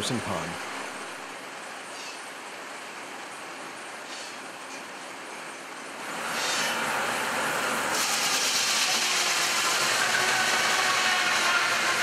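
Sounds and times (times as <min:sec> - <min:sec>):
loud high hiss: 0:06.0 - 0:12.0
sawmill machinery running: 0:06.0 - 0:12.0.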